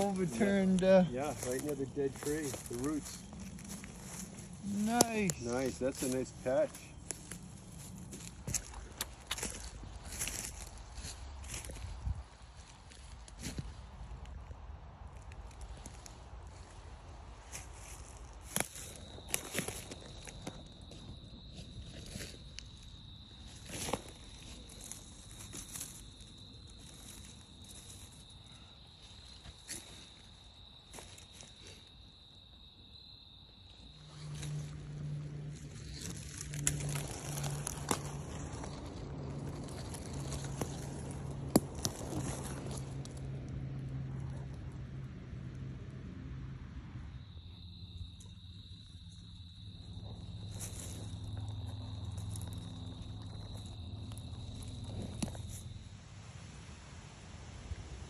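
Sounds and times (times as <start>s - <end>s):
insect trilling: 0.0s - 10.8s, 18.5s - 43.0s
leaf litter crackles: 0.0s - 13.6s, 34.0s - 43.5s.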